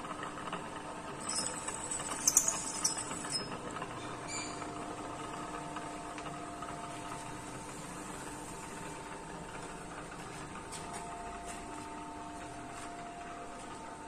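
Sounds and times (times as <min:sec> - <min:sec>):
milling machine drilling steel: 0:01.2 - 0:03.4.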